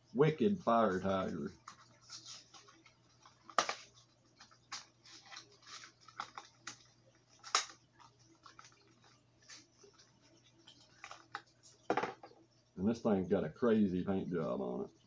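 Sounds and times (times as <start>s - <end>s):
plastic packaging crackling: 1.6s - 11.5s.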